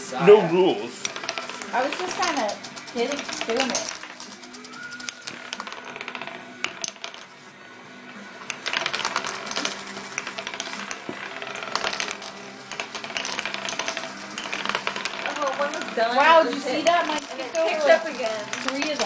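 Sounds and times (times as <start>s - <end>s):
wooden discs spinning on a table: 0.0s - 19.0s
wooden discs clattering flat: 1.0s - 4.5s, 8.6s - 19.0s.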